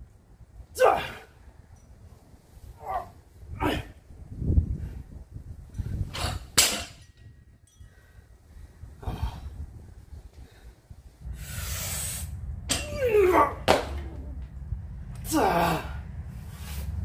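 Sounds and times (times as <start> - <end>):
barbell hitting concrete floor: 6.2 - 7.2, 12.7 - 14.2
man breathing hard: 7.8 - 12.3.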